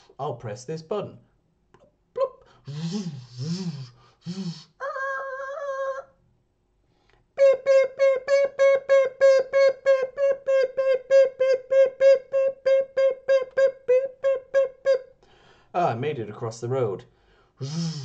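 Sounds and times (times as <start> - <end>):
man imitating beeping signal: 2.2 - 4.7, 17.6 - 18.0.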